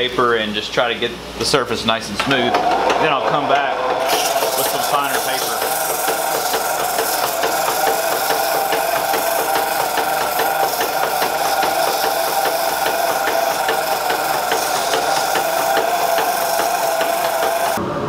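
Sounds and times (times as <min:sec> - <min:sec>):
dust collector hum: 0:00.0 - 0:18.0
sandpaper rasping on spinning wood: 0:03.9 - 0:17.8.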